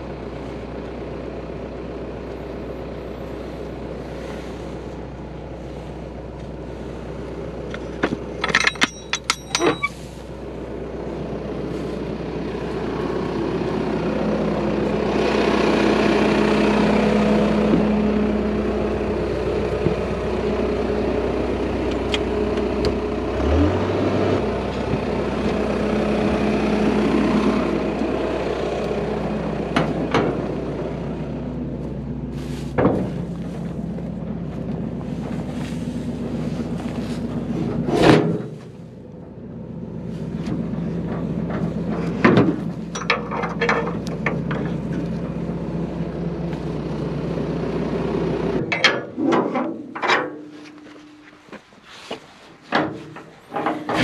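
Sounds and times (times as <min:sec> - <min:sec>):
tractor engine running: 0:00.0 - 0:54.0
sharp knocks and clunks: 0:32.8 - 0:33.3.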